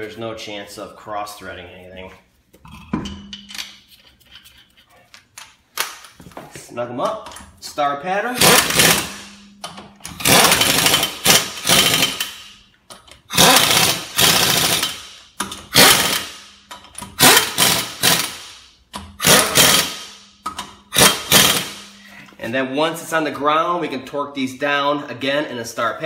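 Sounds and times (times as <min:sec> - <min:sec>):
impact wrench hammering: 0:08.4 - 0:22.1.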